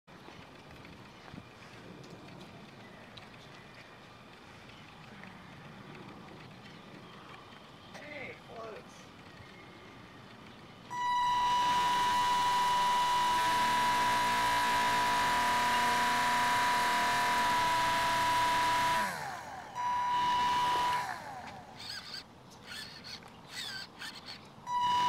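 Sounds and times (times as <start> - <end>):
high motor whine: 9.1 - 25.0.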